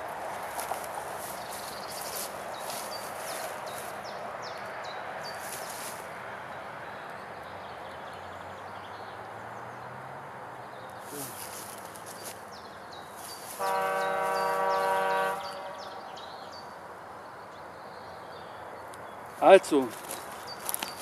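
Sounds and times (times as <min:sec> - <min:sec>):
steps through dry undergrowth: 0:00.0 - 0:06.1, 0:11.0 - 0:15.2, 0:19.3 - 0:21.0
small birds chirping: 0:00.0 - 0:21.0.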